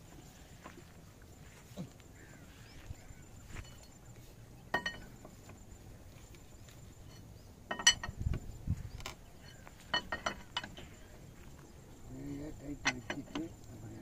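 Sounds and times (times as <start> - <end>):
metal jack handle clinking: 4.7 - 5.2, 7.1 - 11.0, 12.6 - 13.6.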